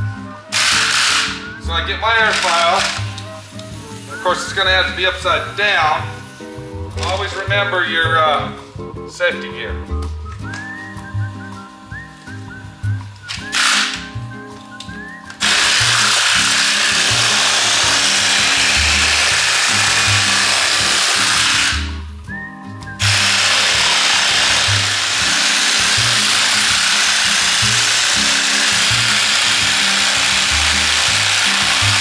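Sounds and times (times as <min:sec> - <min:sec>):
pneumatic air file sanding fiberglass: 0:00.5 - 0:07.2, 0:13.3 - 0:14.2, 0:15.4 - 0:22.1, 0:23.0 - 0:32.0.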